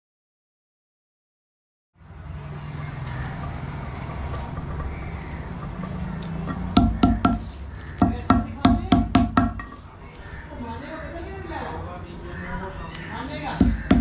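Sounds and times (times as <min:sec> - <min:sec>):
hammer tapping on stone: 0:06.5 - 0:07.4, 0:08.0 - 0:09.8, 0:13.6 - 0:14.0.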